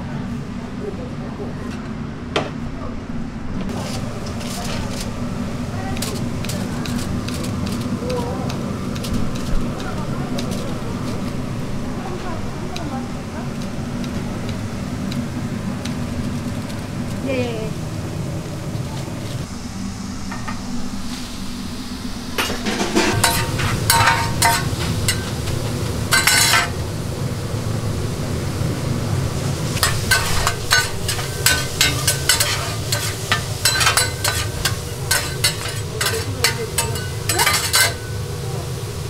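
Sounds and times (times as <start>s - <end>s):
steady low hum: 0.0s - 39.0s
metal spatula scraping on griddle: 22.4s - 25.5s, 26.1s - 26.8s, 29.8s - 38.2s.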